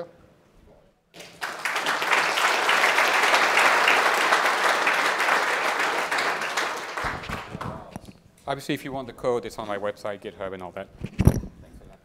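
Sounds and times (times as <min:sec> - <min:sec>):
audience applauding: 0:01.2 - 0:07.9.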